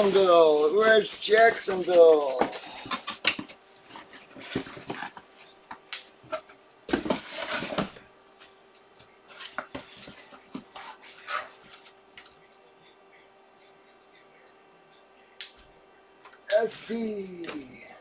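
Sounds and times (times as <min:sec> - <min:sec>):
cardboard rustling: 0:00.0 - 0:05.4, 0:06.9 - 0:08.0
faint steady hum: 0:00.0 - 0:18.0.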